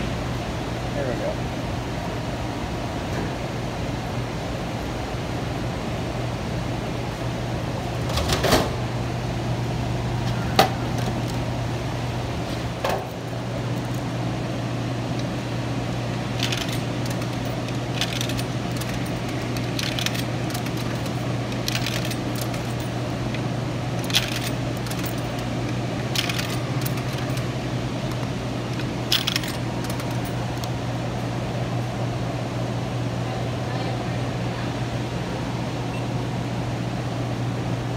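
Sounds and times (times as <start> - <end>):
low machine hum: 0.0 - 37.9
coins clinking into coin slot: 16.4 - 23.0, 24.0 - 30.7.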